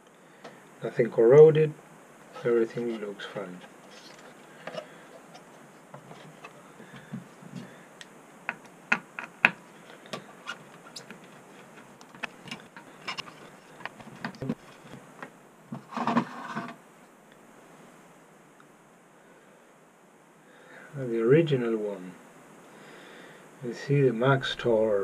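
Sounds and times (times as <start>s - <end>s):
hard drive metal clicks and clatter: 8.5s - 15.0s.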